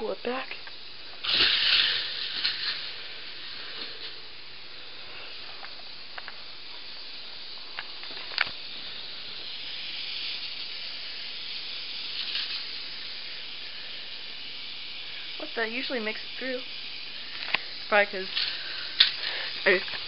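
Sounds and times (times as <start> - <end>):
toy coaster rolling on track: 1.2 - 4.2, 9.4 - 20.0.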